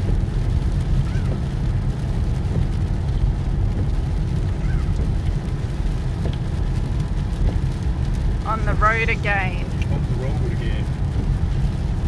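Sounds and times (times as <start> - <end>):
car engine drone: 0.0 - 12.0
tyres on wet road: 0.0 - 12.0.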